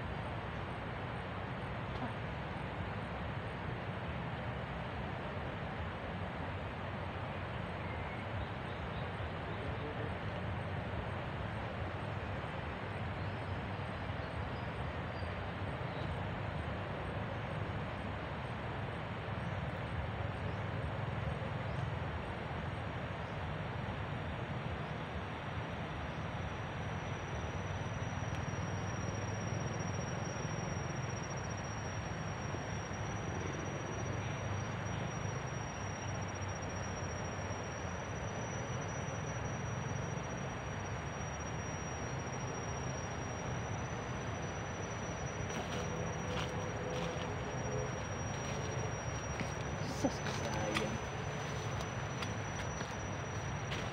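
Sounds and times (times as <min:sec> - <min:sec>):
forest ambience rush of noise: 0:00.0 - 0:53.9
high-pitched insect trill: 0:26.2 - 0:53.9.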